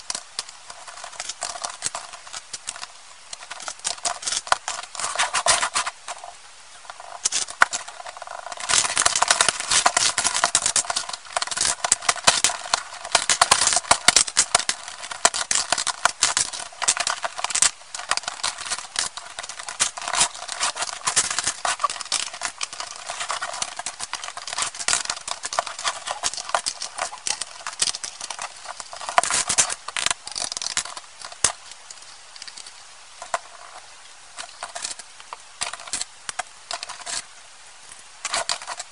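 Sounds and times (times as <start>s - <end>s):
plastic bricks clicking: 6.9s - 33.8s.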